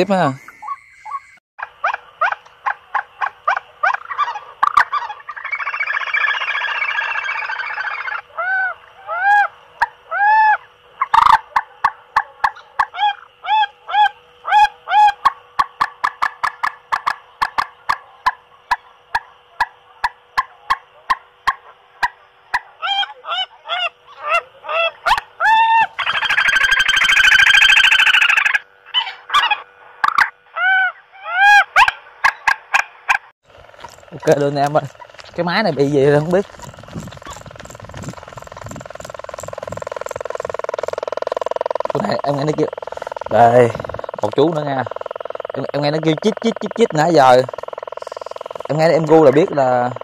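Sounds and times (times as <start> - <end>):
recorded bird calls from speaker: 0.0 - 11.4, 12.2 - 15.4, 22.5 - 32.6, 41.8 - 50.0
steady electrical hum: 0.0 - 50.0
harsh buzzing burst: 33.4 - 50.0.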